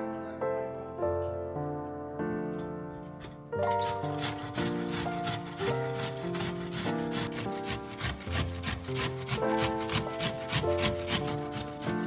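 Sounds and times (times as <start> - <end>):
background music with held notes: 0.0 - 12.0
onion scraping on grater: 3.0 - 12.0.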